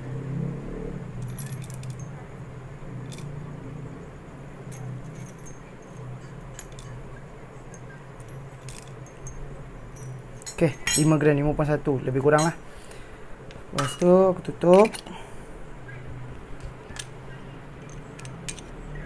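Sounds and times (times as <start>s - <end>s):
low steady hum: 0.0s - 19.0s
coffee beans clicking and rattling: 8.2s - 9.3s.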